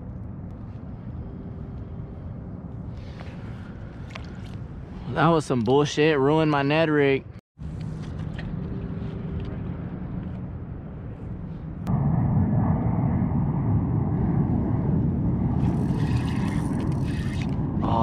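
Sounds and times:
distant engine rumble: 0:07.6 - 0:18.0.

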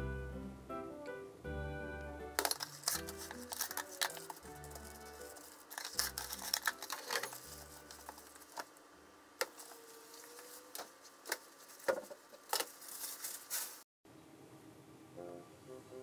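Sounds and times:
cling wrap rustling: 0:02.4 - 0:08.8, 0:09.5 - 0:13.8.

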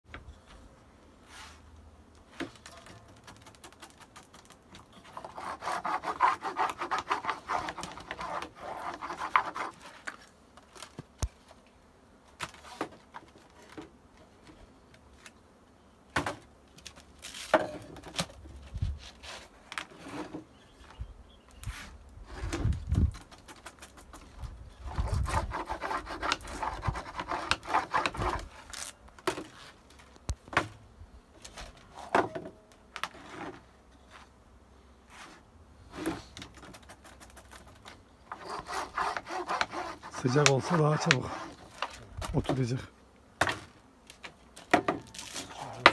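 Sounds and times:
hand tool scraping wax sheet: 0:02.5 - 0:10.9, 0:23.2 - 0:29.9, 0:35.1 - 0:42.7, 0:45.1 - 0:45.9.

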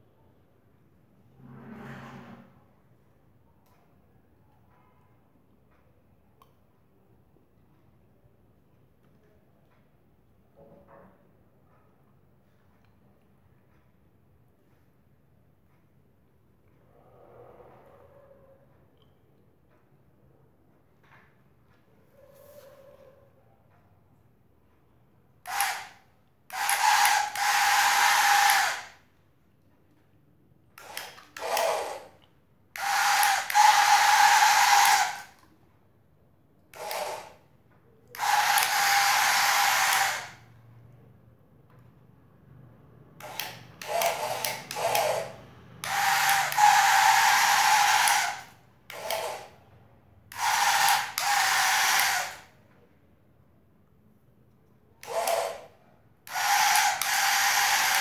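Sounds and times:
small electric motor whirring: 0:25.5 - 0:29.0, 0:30.8 - 0:32.1, 0:32.8 - 0:35.4, 0:36.8 - 0:37.4, 0:38.2 - 0:40.5, 0:43.2 - 0:49.6, 0:50.3 - 0:52.5, 0:55.0 - 0:55.7, 0:56.3 - 0:58.0.

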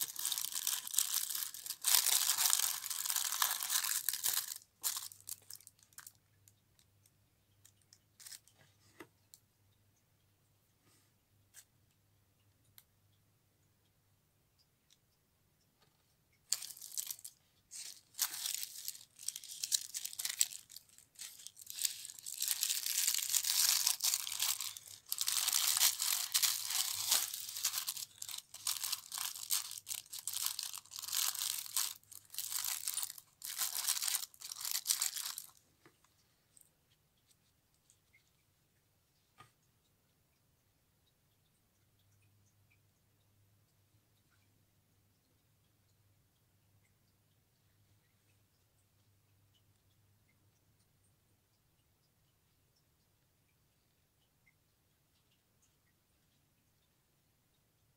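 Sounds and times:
packaging crinkling and rustling: 0:00.0 - 0:06.2, 0:16.5 - 0:35.6.

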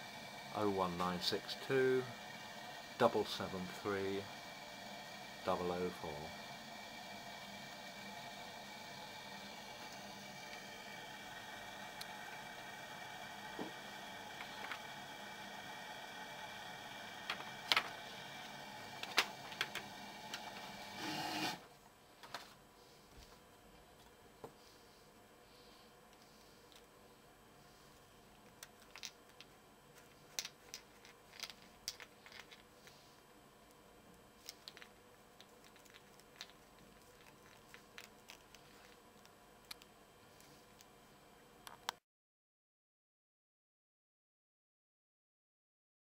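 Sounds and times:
steady hum: 0:00.0 - 0:42.0.

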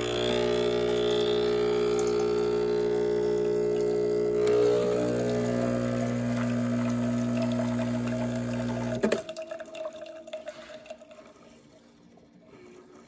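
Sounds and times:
espresso machine pump humming: 0:00.0 - 0:09.2.

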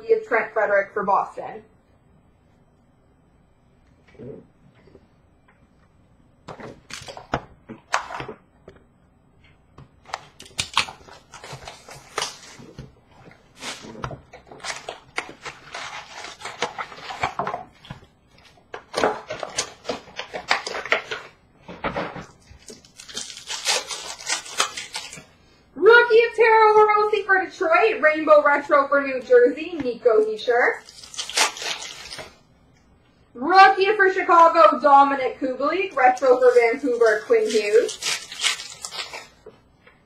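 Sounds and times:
card pack wrappers ripping: 0:06.8 - 0:07.3, 0:10.1 - 0:12.8, 0:13.4 - 0:17.4, 0:18.9 - 0:21.3, 0:22.5 - 0:25.3, 0:30.8 - 0:32.4, 0:36.1 - 0:39.4.

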